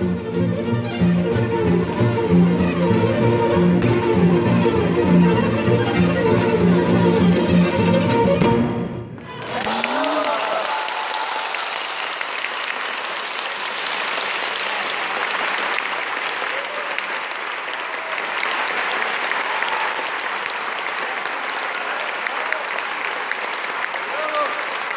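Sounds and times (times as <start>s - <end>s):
large audience applauding: 9.2s - 24.9s.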